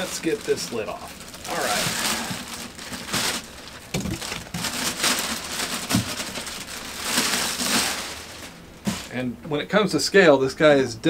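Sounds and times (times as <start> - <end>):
plastic bag crinkling: 0.0 - 9.2
soft thumps: 8.8 - 9.2.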